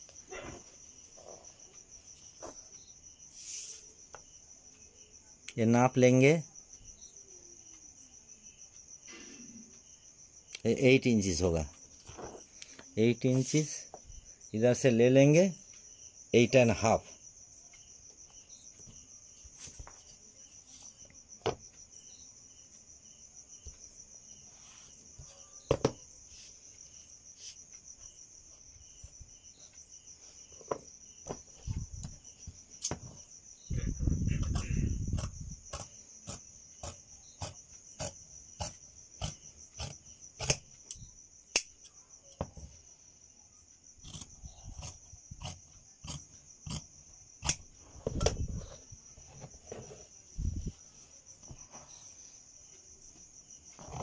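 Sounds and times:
crickets chirring: 0.0 - 54.0
scissors snipping fabric: 34.4 - 40.6.

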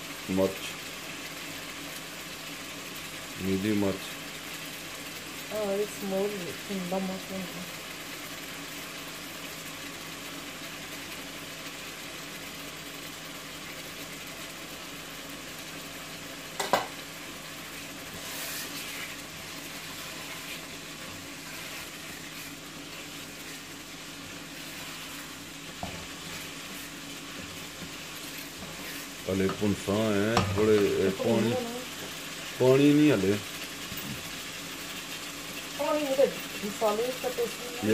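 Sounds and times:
curry simmering and sizzling: 0.0 - 37.9
wooden spoon stirring: 18.1 - 32.1.

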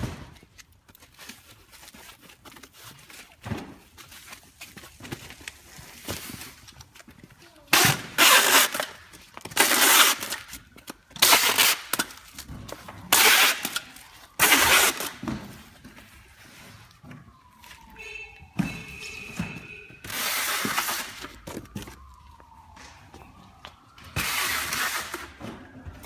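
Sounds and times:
plastic rustling: 0.0 - 26.0.

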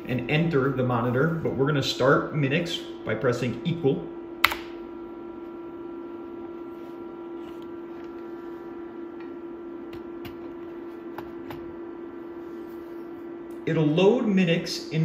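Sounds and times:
steady low hum: 0.0 - 15.0
keyboard keystroke: 4.4 - 4.8.

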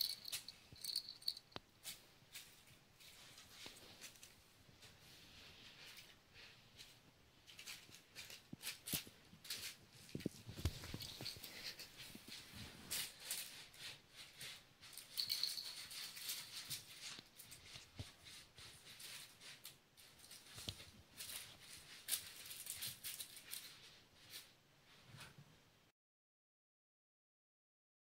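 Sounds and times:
toy balls rattling and crinkling: 0.0 - 4.3, 6.8 - 17.8, 18.9 - 24.4
kittens pattering on carpet: 0.0 - 25.4.

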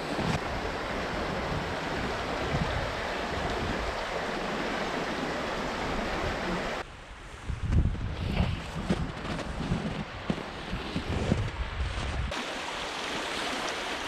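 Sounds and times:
river water rushing: 0.0 - 6.8, 12.3 - 14.0.

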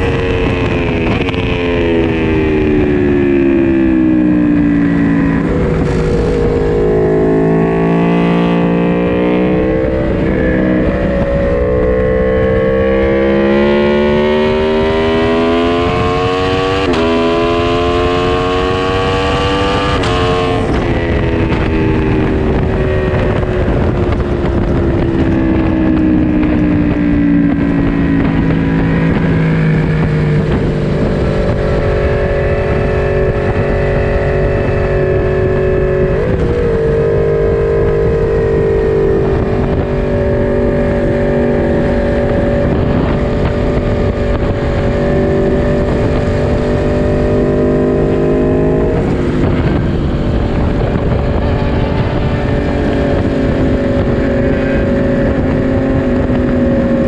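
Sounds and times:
motorcycle engine revving: 0.0 - 57.0
wind rushing over microphone: 0.0 - 57.0.

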